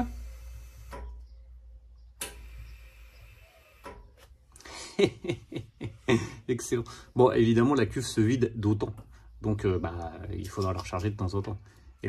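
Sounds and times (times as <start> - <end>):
solenoid valve clicks: 2.2 - 2.6.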